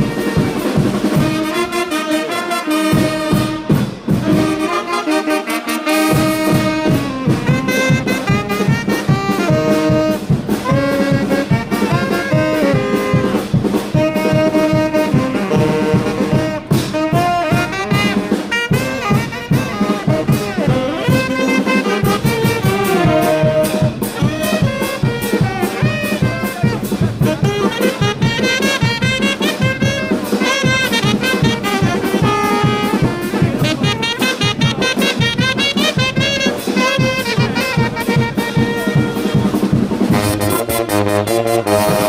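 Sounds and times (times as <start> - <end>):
steady drum beat: 0.0 - 42.0
trumpets and trombones melody: 0.0 - 42.0.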